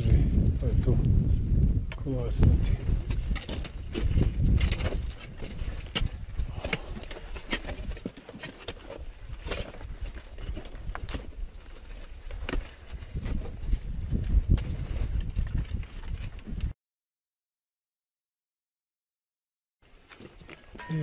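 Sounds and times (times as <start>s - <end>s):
wind buffeting microphone: 0.0s - 7.9s, 9.0s - 16.7s
trekking poles clicking: 3.0s - 13.4s.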